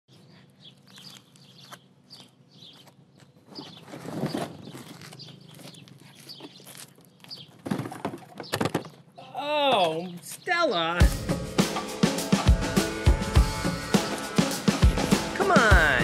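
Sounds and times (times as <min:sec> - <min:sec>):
small birds chirping: 0:00.1 - 0:07.6, 0:08.3 - 0:11.3
boxes thumping on pavement: 0:07.3 - 0:09.1.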